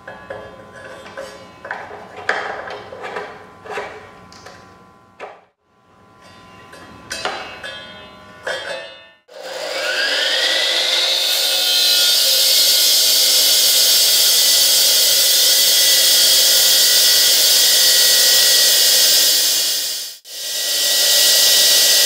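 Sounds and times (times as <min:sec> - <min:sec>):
concrete saw cutting: 0:09.3 - 0:22.0.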